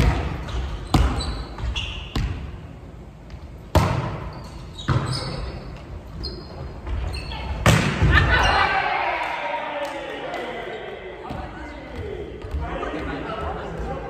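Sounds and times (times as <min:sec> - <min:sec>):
volleyball hit echoing in gym: 0:00.0 - 0:05.8, 0:06.9 - 0:10.5
sneaker squeaks on wooden floor: 0:00.5 - 0:02.6, 0:04.0 - 0:07.6.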